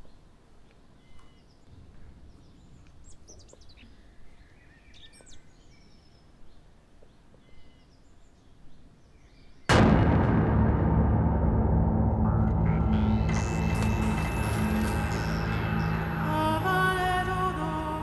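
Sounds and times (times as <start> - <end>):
small birds chirping: 0.0 - 9.7
background hum: 0.0 - 18.0
music with ringing gong hit: 9.7 - 18.0.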